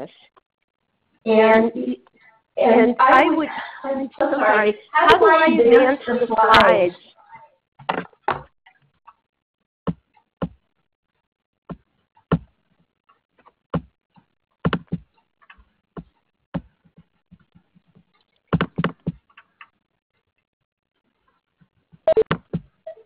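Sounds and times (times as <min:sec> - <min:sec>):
keyboard and mouse clicks: 0:18.2 - 0:19.8.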